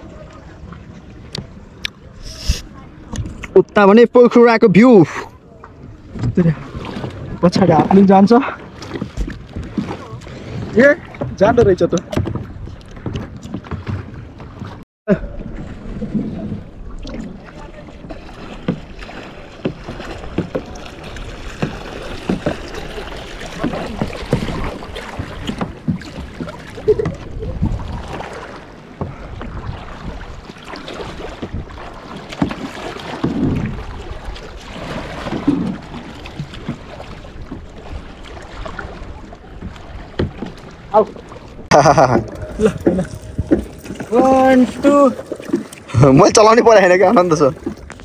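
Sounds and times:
water slapping against paddleboard: 0:05.1 - 0:48.0
wind buffeting microphone: 0:05.4 - 0:48.0.

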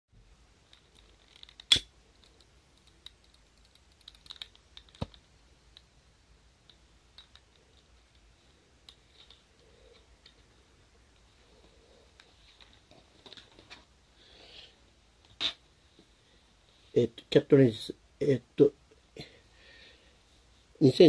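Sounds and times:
small metal clicks and taps: 0:00.7 - 0:05.9, 0:06.6 - 0:10.4.

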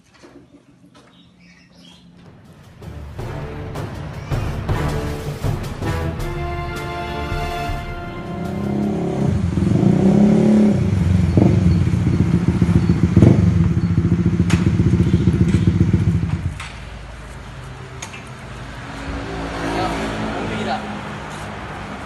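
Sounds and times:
motorcycle engines revving: 0:08.1 - 0:22.0.

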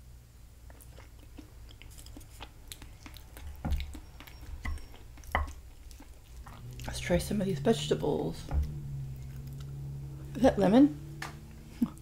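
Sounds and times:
close chewing of food: 0:00.5 - 0:10.4
wooden fork tapping a plate: 0:04.6 - 0:05.6
soft low thumps: 0:06.8 - 0:09.5.

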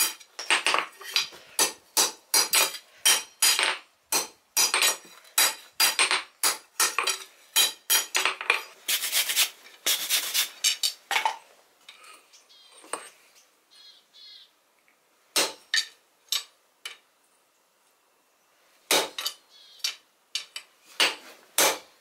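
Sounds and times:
hammer striking steel on anvil: 0:01.6 - 0:08.2.

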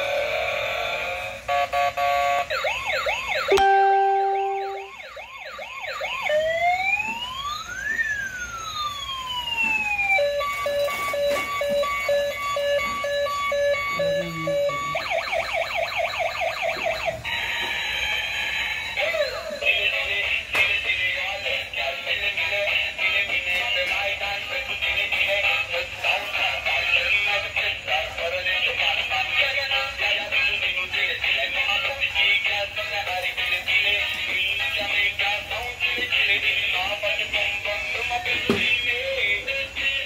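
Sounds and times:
toy electronic siren: 0:00.0 - 0:20.1.

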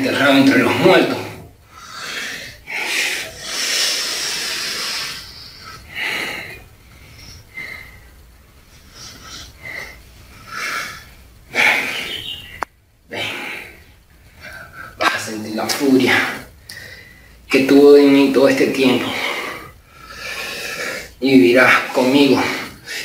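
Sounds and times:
man breathing hard and hissing: 0:01.1 - 0:12.3, 0:13.1 - 0:15.0, 0:16.2 - 0:17.5, 0:19.0 - 0:21.2, 0:22.4 - 0:23.0.

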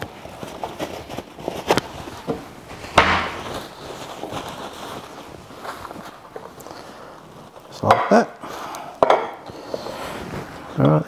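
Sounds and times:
rustling scrape: 0:00.0 - 0:07.8, 0:09.6 - 0:10.8.

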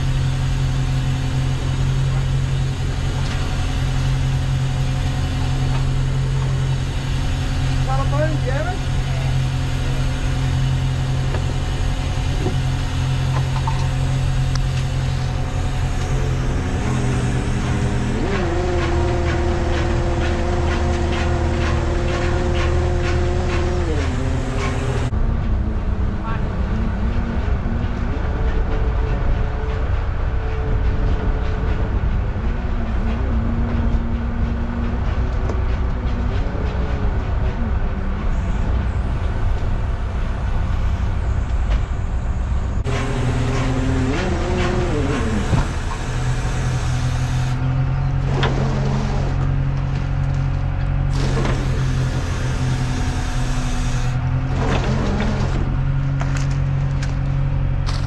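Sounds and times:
boat engine running: 0:00.0 - 0:58.0
sharp knocks and clatters: 0:17.1 - 0:25.1.

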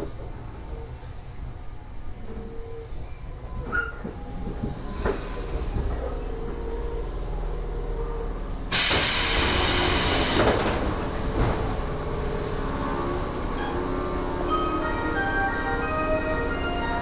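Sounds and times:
train car low hum: 0:00.0 - 0:17.0
compressed air hiss: 0:08.7 - 0:10.4.

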